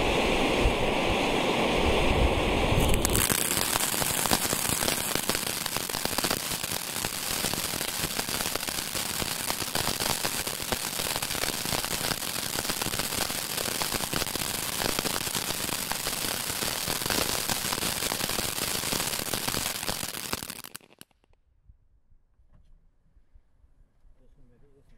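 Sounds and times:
firework crackling: 2.7 - 21.3.

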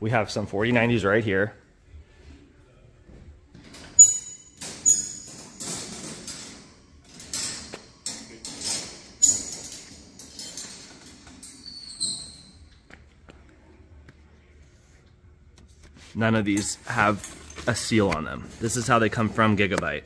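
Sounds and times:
wire panels rattling: 3.6 - 12.4
short high squeak: 4.0 - 5.3
metallic clinks and pings: 4.0 - 5.4.

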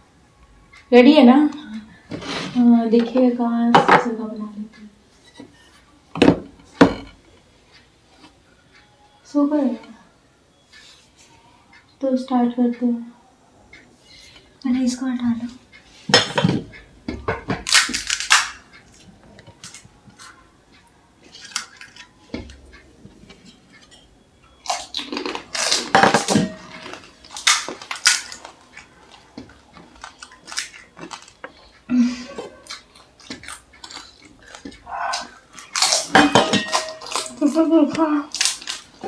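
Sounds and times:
crisp shells cracking: 17.6 - 18.6, 24.6 - 29.2, 29.9 - 31.5, 32.7 - 37.6, 38.3 - 39.0
steel bowls and spoons clinking: 23.3 - 28.9, 32.3 - 39.0
chewing: 23.6 - 25.9, 26.5 - 37.4.

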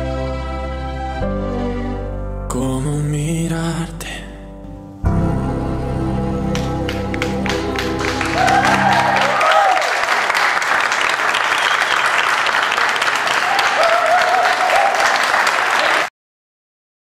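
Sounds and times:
audience applauding: 6.5 - 16.1.

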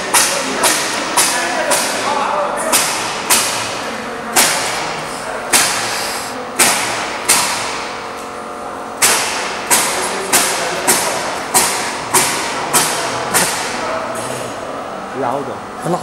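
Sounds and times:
sharp knocks with long echo: 2.7 - 3.8, 4.4 - 5.9, 6.6 - 8.0, 9.0 - 13.9.

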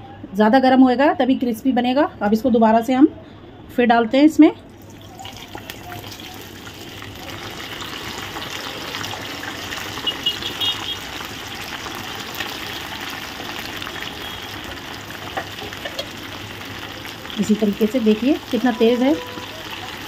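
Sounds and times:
oil sizzling and crackling: 4.7 - 20.0.

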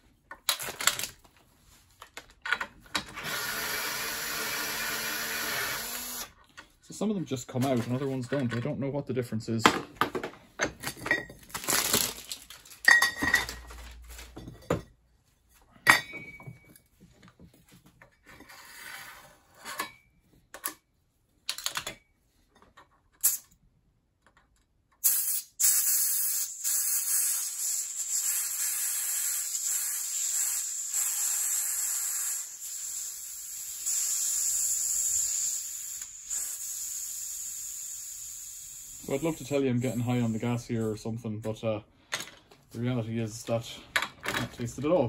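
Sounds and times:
metal flasks clinking: 12.8 - 13.7
gas hissing from flask: 25.0 - 39.4.

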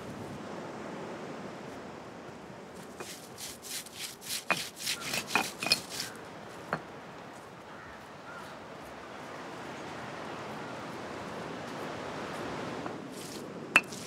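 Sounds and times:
stone roller grinding on stone: 3.0 - 6.2, 13.8 - 14.0.

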